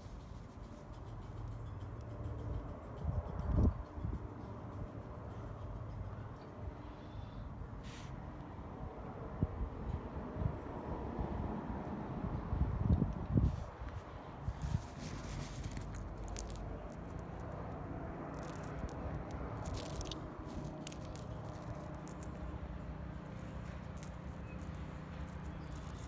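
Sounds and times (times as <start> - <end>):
crystals clicking together: 14.5 - 26.0.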